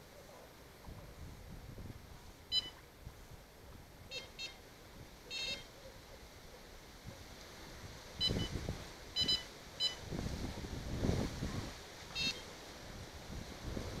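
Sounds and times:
bite alarm bleeps: 2.5 - 2.8, 9.2 - 10.0, 12.2 - 12.4.

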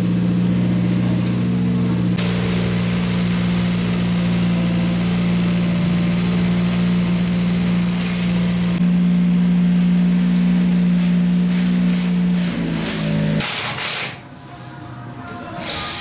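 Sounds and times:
race car engine idling: 0.1 - 9.5.

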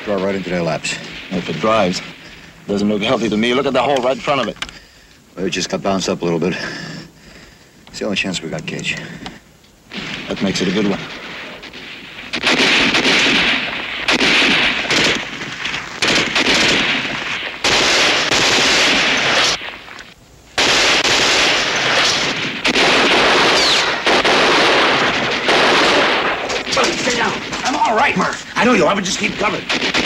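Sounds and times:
rifle shots: 0.0 - 4.0, 9.9 - 20.0, 20.6 - 30.0
automatic weapon bursts: 16.0 - 19.6, 20.6 - 27.6.

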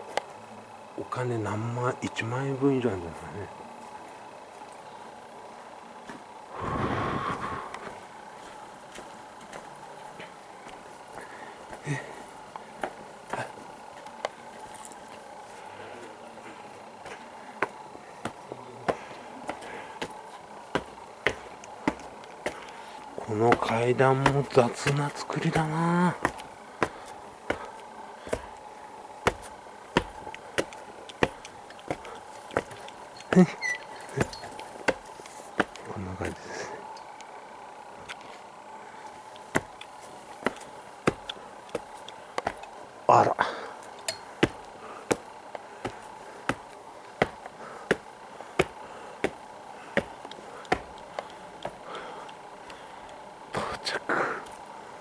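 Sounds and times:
footsteps on stone steps: 6.0 - 15.6, 16.4 - 37.0, 39.2 - 42.8, 43.8 - 53.2.

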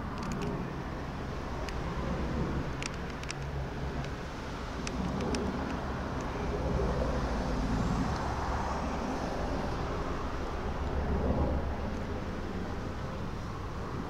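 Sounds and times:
helicopter flying overhead: 0.0 - 14.0.

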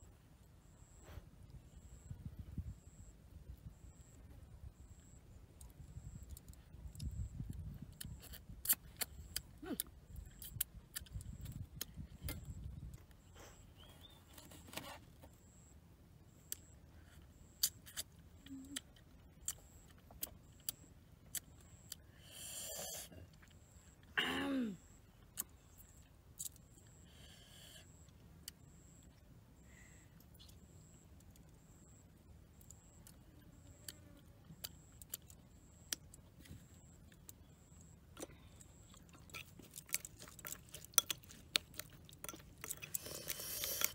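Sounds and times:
wind rumbling on microphone: 2.1 - 3.8, 5.7 - 8.7.

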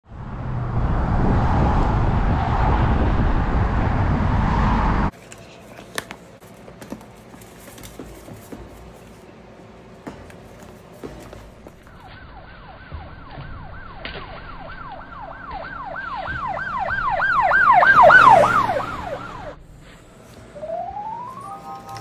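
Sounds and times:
loud rushing noise: 0.1 - 5.1.

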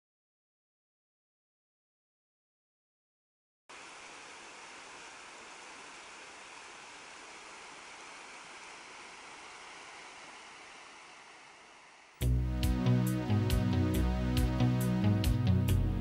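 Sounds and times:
water rushing over stones: 3.7 - 12.1.

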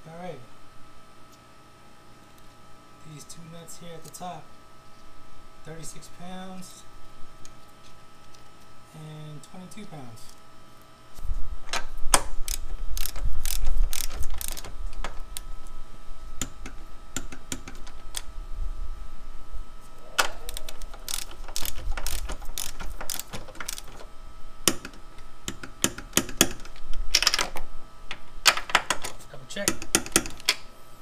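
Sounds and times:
socket wrench ratcheting: 12.4 - 15.2, 20.5 - 24.0.

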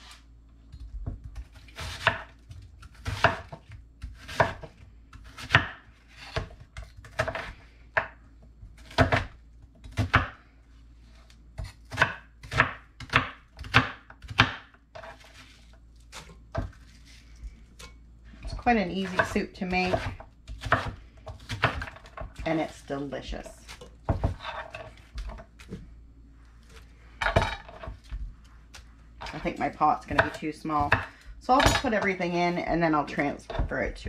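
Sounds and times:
knife chopping onion on wooden board: 1.0 - 10.4, 11.6 - 15.4, 18.4 - 22.5, 30.1 - 32.0.

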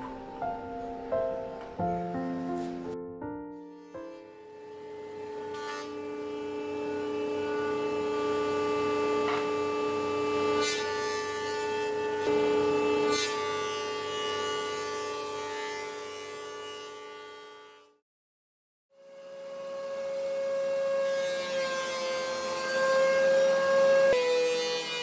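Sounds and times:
jointer cutterhead whine: 3.8 - 14.8.

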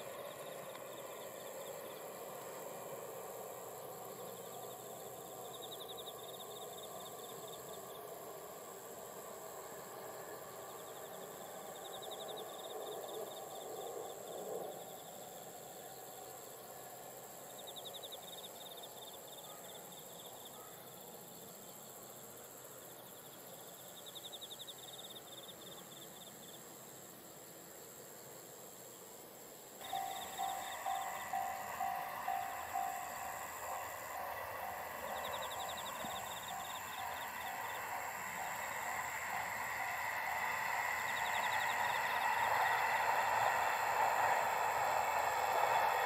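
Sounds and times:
fast pulsing insect chirp: 0.0 - 46.0
high-pitched insect trill: 0.0 - 46.0.

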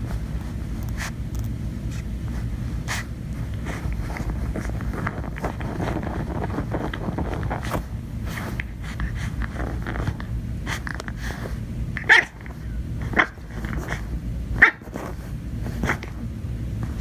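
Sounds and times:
puppy barking: 12.0 - 14.0, 14.6 - 15.1.

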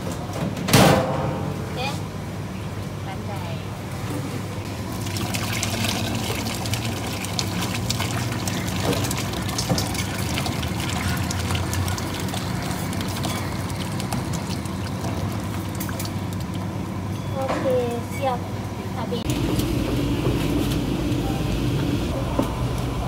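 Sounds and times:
thick gravy pouring and splashing: 4.7 - 16.7.

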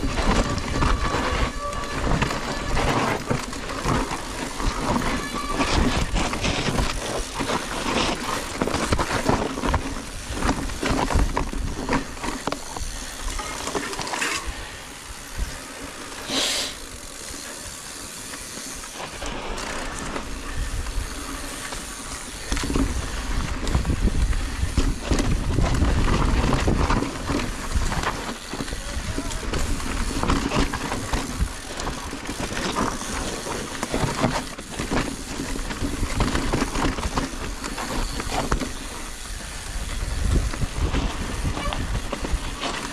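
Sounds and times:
tyres crunching over stones: 0.0 - 14.5, 17.1 - 42.9
bike chain and frame clattering: 0.0 - 42.9
short hiss: 16.2 - 16.8.

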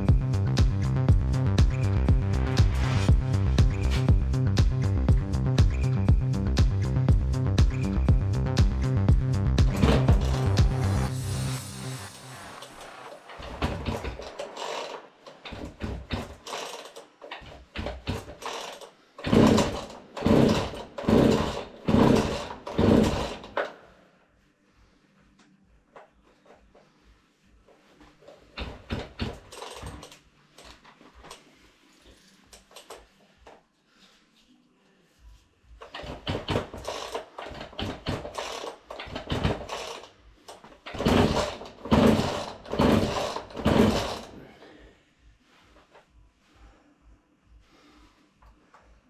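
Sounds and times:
chainsaw starter cord pulls: 13.6 - 17.4, 18.0 - 23.7, 28.6 - 30.7, 35.9 - 40.1, 40.9 - 44.4.

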